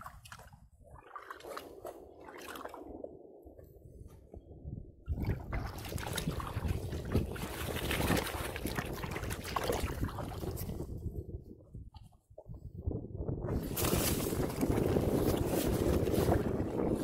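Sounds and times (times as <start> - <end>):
water trickling and sloshing: 0.0 - 12.7.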